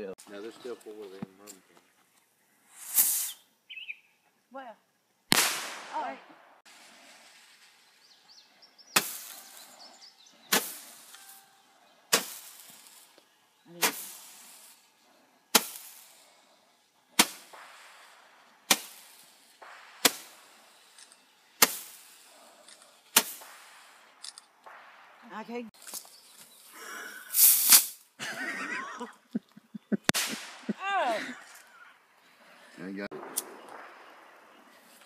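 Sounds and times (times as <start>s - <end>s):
roman candle firing pops: 5.3s - 6.1s, 9.0s - 9.8s, 10.5s - 11.4s, 12.1s - 14.4s, 15.5s - 16.1s, 17.2s - 22.0s, 22.6s - 26.5s, 30.1s - 30.8s.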